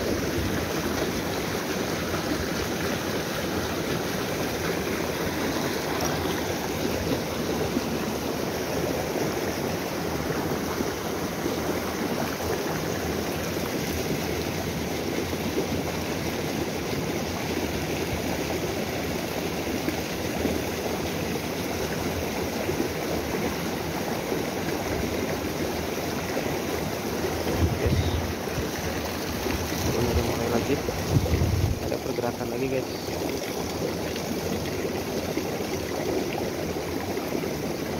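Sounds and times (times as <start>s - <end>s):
stream flowing over rocks: 0.0s - 37.9s.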